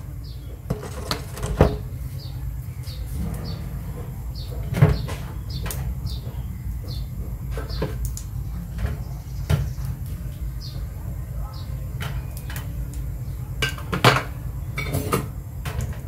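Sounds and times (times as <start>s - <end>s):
cooktop hum: 0.0s - 16.0s.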